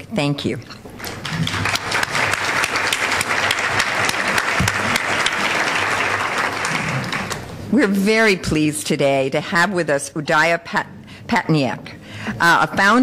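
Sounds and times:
audience applauding: 1.0 - 7.5.

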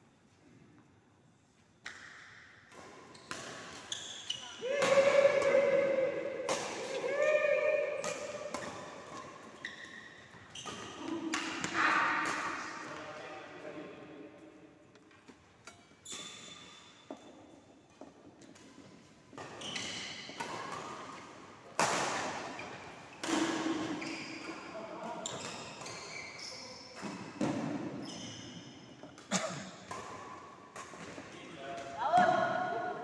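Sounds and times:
racket hitting shuttlecock: 1.8 - 4.2, 4.8 - 9.6, 10.3 - 13.0, 18.0 - 24.6, 29.2 - 33.0.

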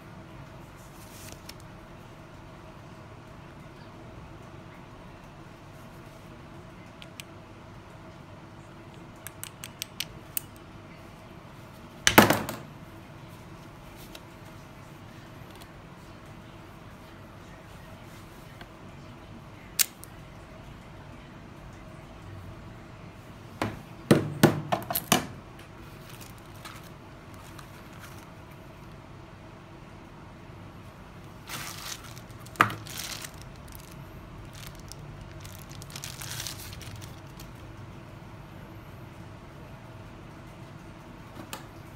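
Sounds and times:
plastic bag and cardboard rustling: 0.8 - 1.6, 25.8 - 28.5, 31.2 - 37.7.

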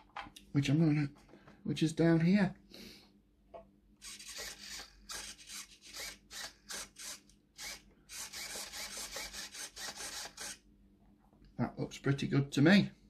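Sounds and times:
servo whirring: 4.0 - 10.6.

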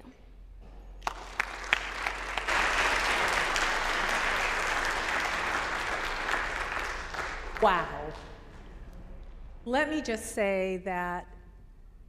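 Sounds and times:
audience applauding: 1.0 - 8.7.

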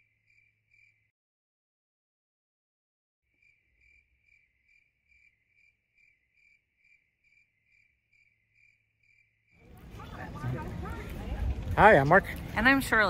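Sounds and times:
insect chirping: 0.0 - 1.1, 3.3 - 9.6.

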